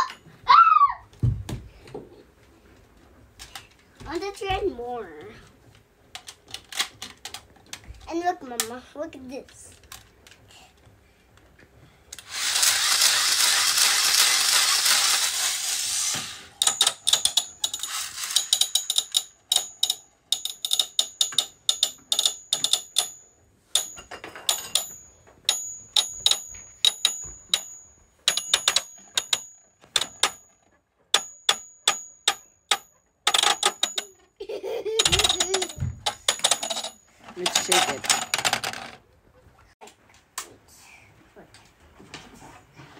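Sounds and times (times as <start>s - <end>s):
spinning top whirring: 12.2s - 20.0s
top clattering against plastic: 35.0s - 39.0s.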